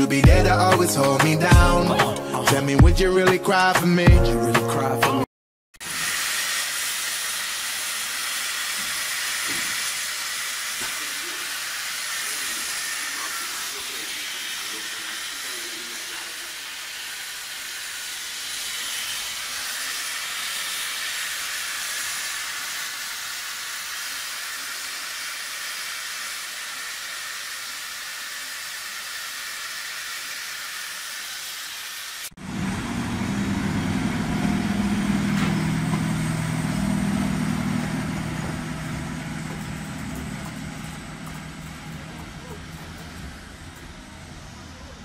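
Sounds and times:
steam locomotive hissing: 5.8s - 45.0s
electric locomotive low hum: 32.4s - 45.0s.

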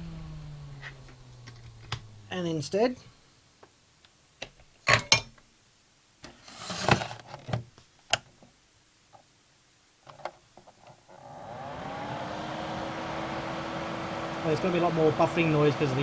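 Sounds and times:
fan whirring: 0.0s - 3.4s, 11.1s - 16.0s.

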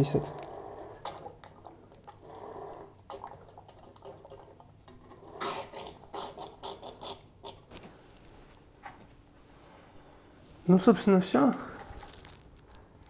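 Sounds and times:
liquid squirting: 0.9s - 7.6s
plastic bottle creaking: 11.8s - 13.0s.

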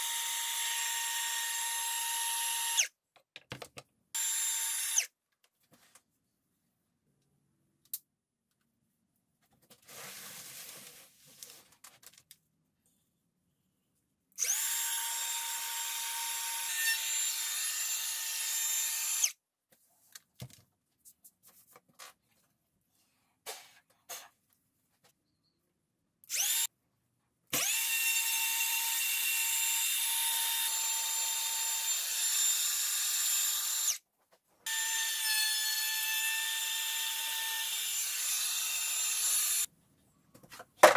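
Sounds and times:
router whining: 0.0s - 2.9s, 4.2s - 5.1s, 14.4s - 19.3s, 26.3s - 26.7s, 27.6s - 34.0s.

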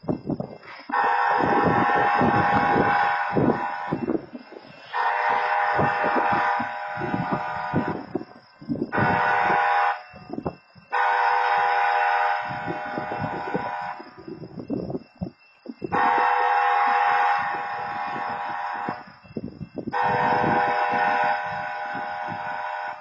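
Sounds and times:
railroad crossing horn blasts: 0.8s - 14.3s, 15.8s - 19.2s, 19.8s - 23.0s.

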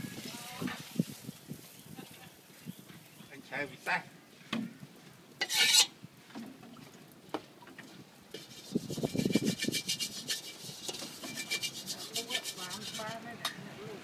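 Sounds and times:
spatula scraping a steel wok: 5.4s - 6.0s, 8.3s - 13.6s.

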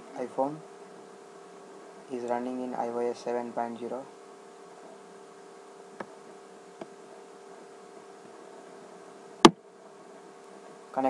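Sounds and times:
electrical hum: 0.0s - 11.0s
faint steady tone: 0.0s - 11.0s
faint ticks: 6.0s - 8.8s.

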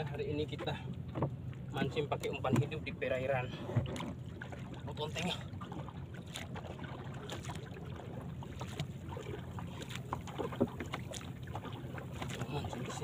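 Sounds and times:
light taps on boat hull: 0.4s - 3.0s, 3.6s - 4.7s, 8.4s - 13.0s
hand paddling in water: 3.5s - 13.0s.

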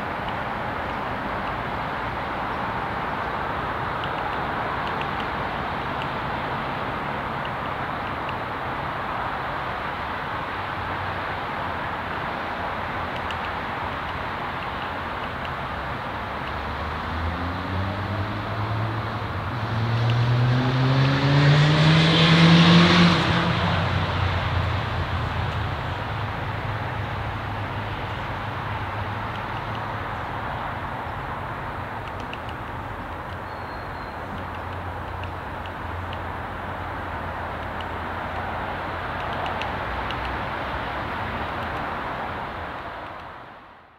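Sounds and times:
distant traffic rumble: 0.0s - 43.9s
passing vehicle engine: 16.2s - 32.0s.

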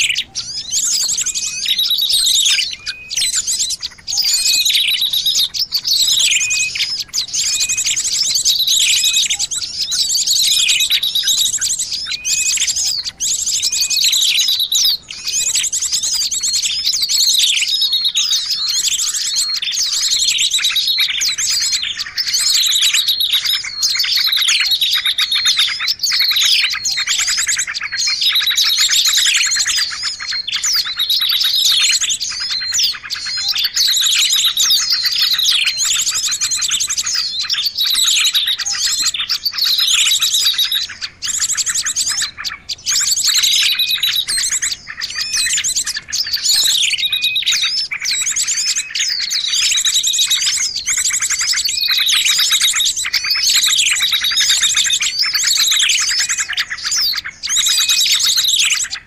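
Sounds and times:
small songbirds chirping: 0.0s - 59.0s.

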